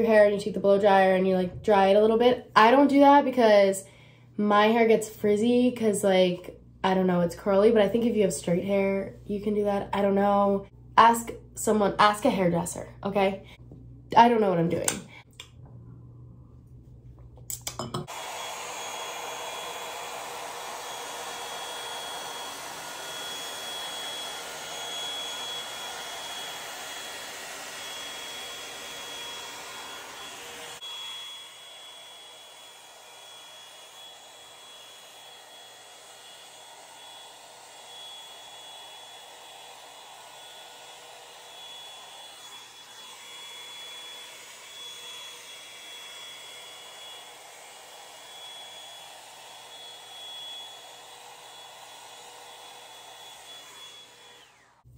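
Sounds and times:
hair dryer brush running: 17.8s - 54.9s.

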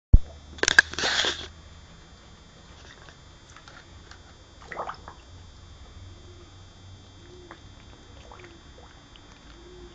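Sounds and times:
dog blowing bubbles in water: 4.6s - 5.2s, 7.5s - 9.4s.

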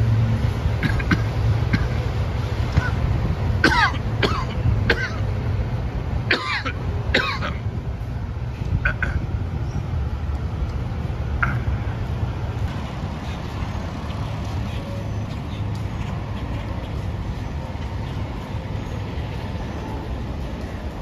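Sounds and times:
car rumble: 0.0s - 21.0s.

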